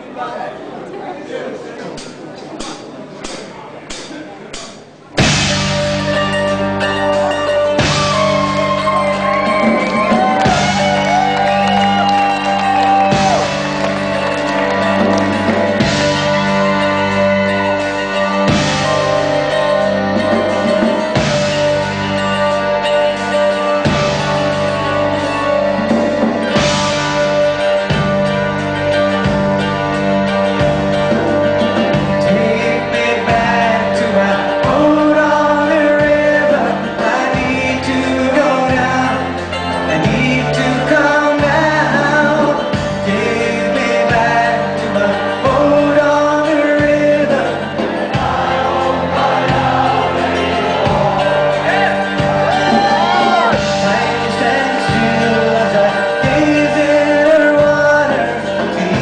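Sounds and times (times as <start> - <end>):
sustained backing chords: 5.0 - 59.0
audience whooping and shouting: 7.8 - 15.8, 48.2 - 53.7
steady low notes: 13.0 - 41.6
man singing: 31.7 - 59.0.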